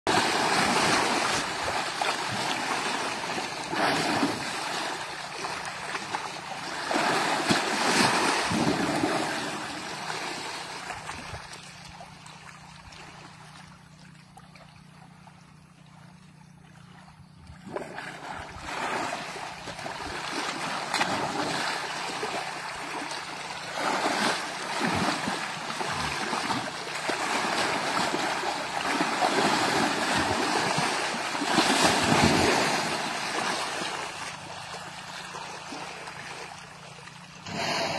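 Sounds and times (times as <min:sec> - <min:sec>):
muddy water sloshing and splashing: 0:00.1 - 0:37.9.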